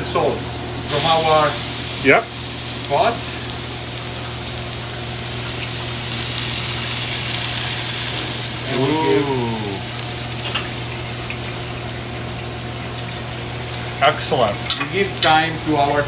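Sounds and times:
gas range hum and hiss: 0.0s - 16.0s
sauce sizzling in a pan: 0.6s - 15.8s
short rising falling voice: 8.6s - 9.9s.

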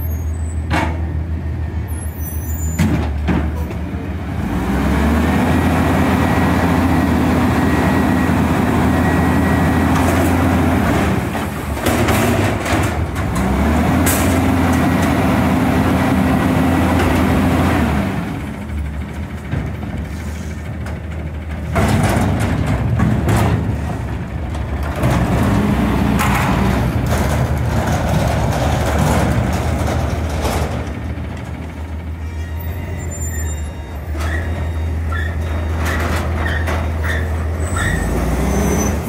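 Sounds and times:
garbage truck diesel engine: 0.0s - 39.0s
clanks and bangs of steel container: 20.8s - 25.4s.

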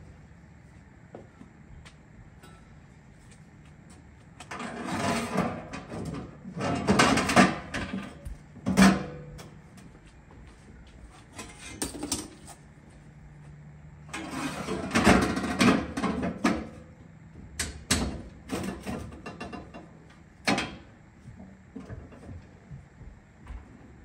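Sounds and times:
scraping and clatter: 4.4s - 8.0s.

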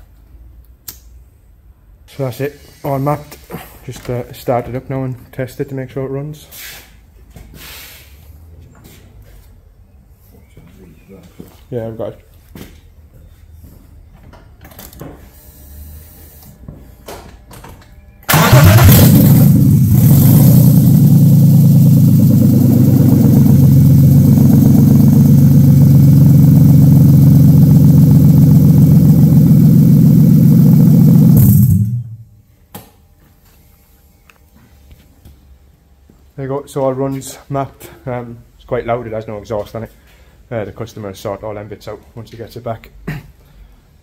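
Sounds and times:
loud car engine running: 18.3s - 32.2s.

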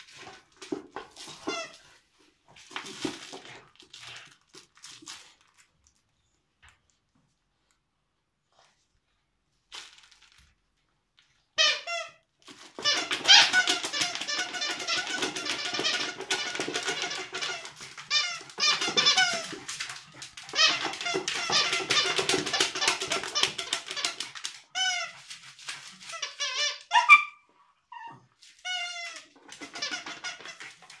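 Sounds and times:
squeaky toy squeaking: 11.6s - 12.2s, 12.8s - 19.6s, 20.4s - 25.2s, 26.1s - 30.8s.

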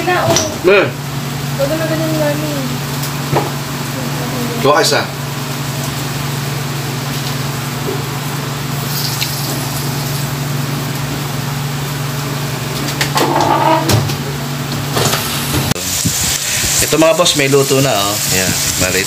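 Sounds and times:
meat sizzling on a grill pan: 5.3s - 11.1s, 15.0s - 19.0s.

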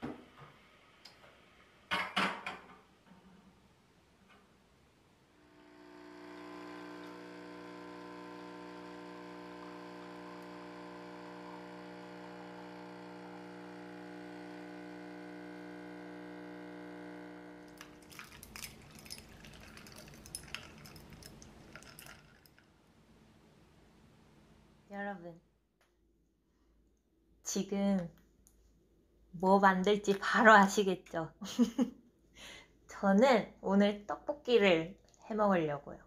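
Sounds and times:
espresso machine pump humming: 5.4s - 22.5s
light clicks and clinks: 18.0s - 22.6s.

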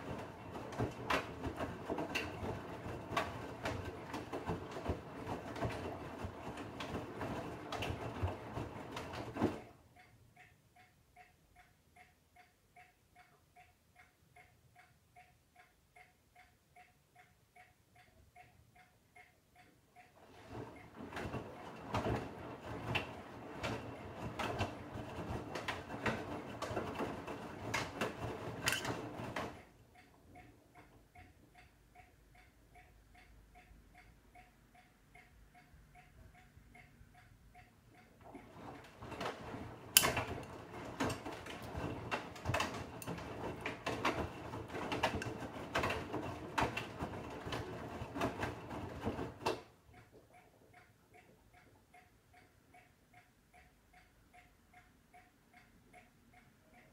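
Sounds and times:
washing machine drum tumbling laundry: 0.0s - 9.8s, 20.2s - 29.8s, 38.2s - 49.8s
light fast ticking: 29.6s - 39.3s, 49.9s - 56.9s.

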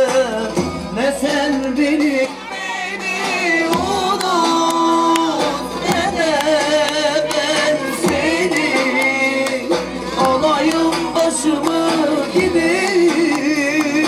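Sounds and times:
percussion: 0.0s - 14.0s
person singing: 0.0s - 14.0s.

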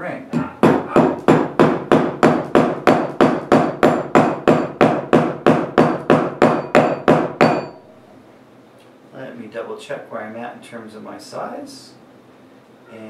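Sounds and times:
mallet striking metal ring: 5.9s - 7.9s.

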